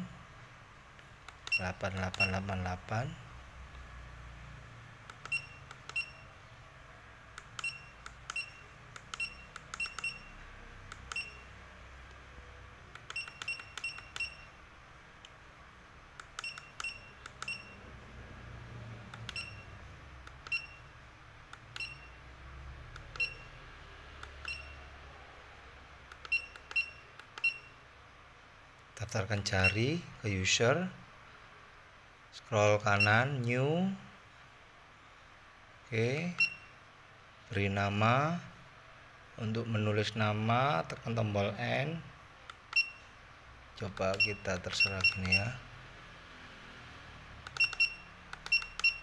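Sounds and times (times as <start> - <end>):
faint low hum: 0.0 - 49.0
short high keypad beeps: 5.2 - 6.3, 7.6 - 10.4, 11.1 - 11.5, 13.1 - 14.6, 16.4 - 17.8, 19.3 - 19.8, 20.5 - 20.9, 21.8 - 22.2, 23.2 - 23.6, 24.4 - 24.9, 26.3 - 27.8, 36.4 - 36.7, 42.7 - 43.1, 44.2 - 45.5, 47.5 - 49.0.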